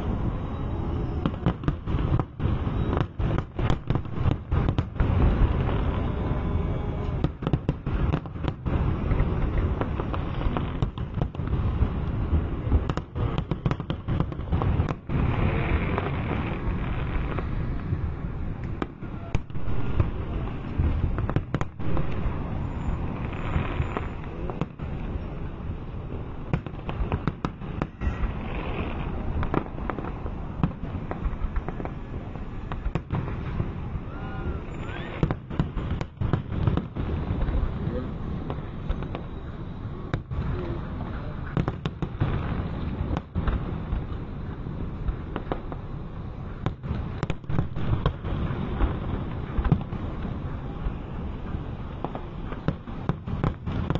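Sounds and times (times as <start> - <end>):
fireworks bangs and crackles: 0.0 - 53.9.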